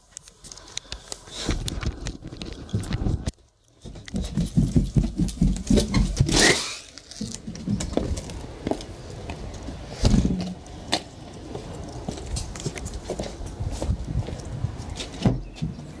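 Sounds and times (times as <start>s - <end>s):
footsteps on carpeted stairs: 1.5s - 6.4s, 7.2s - 10.4s, 11.5s - 15.9s.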